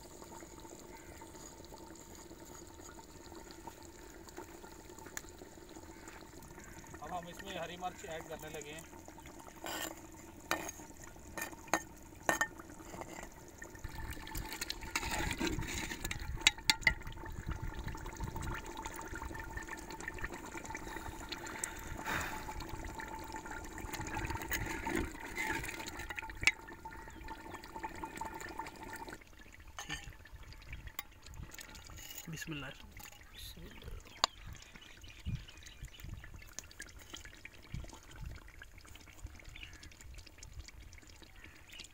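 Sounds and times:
curry bubbling in a pot: 0.0s - 41.9s.

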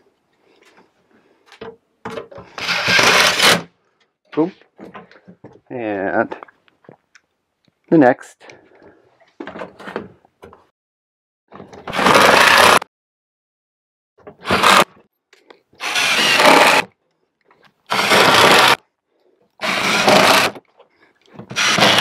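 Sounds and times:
impact driver driving screws: 2.6s - 3.7s, 11.9s - 12.8s, 14.4s - 14.9s, 15.8s - 16.9s, 17.9s - 18.8s, 19.6s - 20.6s, 21.4s - 22.0s.

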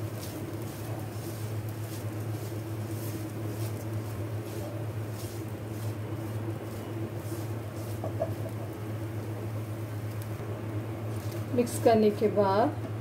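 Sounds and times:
spatula scraping a wok: 0.0s - 8.8s
steady low hum: 0.0s - 13.0s.

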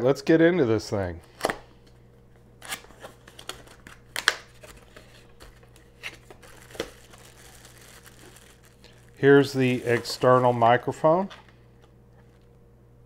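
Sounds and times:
plastic wrap crinkling: 2.6s - 11.3s.

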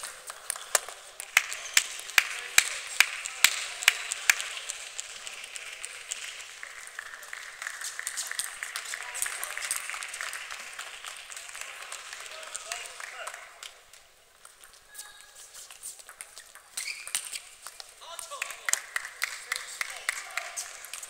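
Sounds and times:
person clapping: 0.0s - 13.7s, 17.1s - 21.0s.

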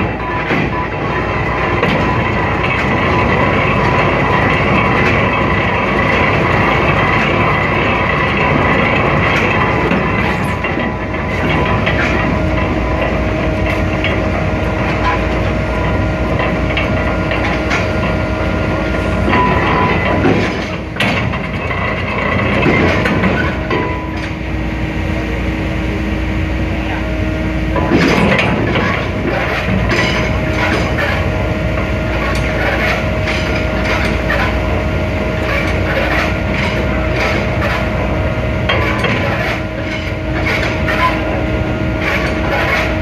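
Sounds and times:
winch machinery rumble and clatter: 0.0s - 43.0s.

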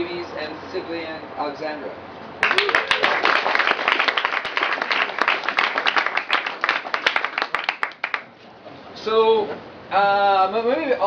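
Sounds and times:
group applauding: 2.4s - 8.3s.

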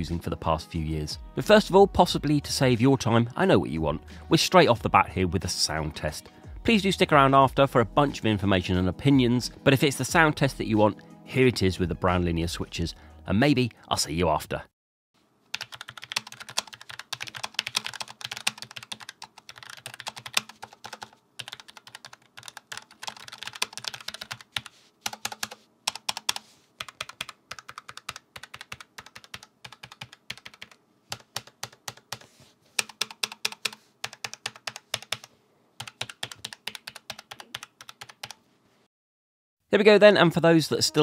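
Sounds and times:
typing on keyboard: 15.5s - 38.4s.

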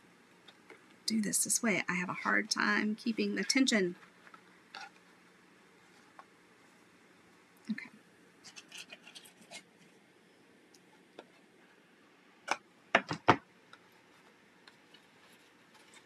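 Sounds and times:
ribbon rustling: 8.4s - 10.0s.

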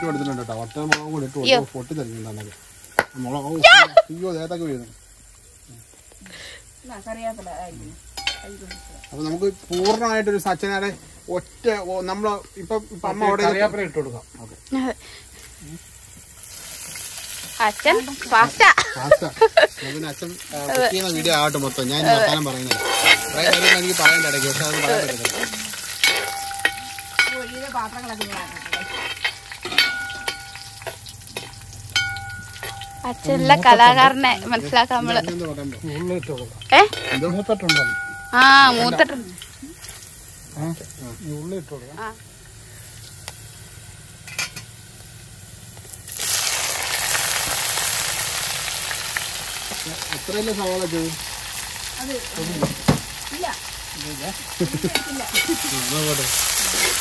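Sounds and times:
spices sizzling in oil: 0.0s - 57.0s
metal ladle clinking on metal pot: 22.6s - 33.3s, 36.4s - 38.4s, 54.9s - 55.8s.

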